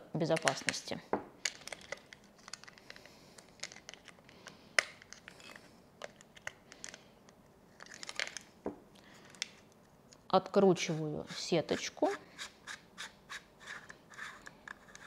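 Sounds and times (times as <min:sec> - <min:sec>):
plastic clicks and scratching: 0:01.4 - 0:08.5, 0:13.7 - 0:15.0.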